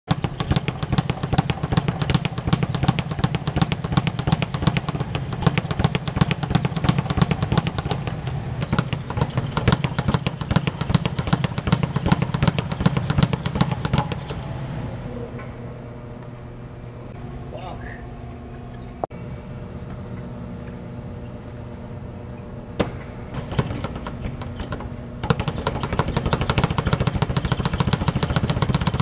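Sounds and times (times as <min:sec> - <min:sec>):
speed bag drumming: 0:00.1 - 0:14.4, 0:23.4 - 0:29.0.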